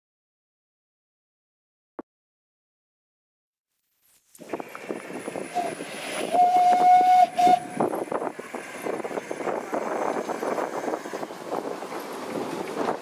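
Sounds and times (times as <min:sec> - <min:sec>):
train rattling along: 0:04.4 - 0:13.0
steam train whistle: 0:05.5 - 0:07.9.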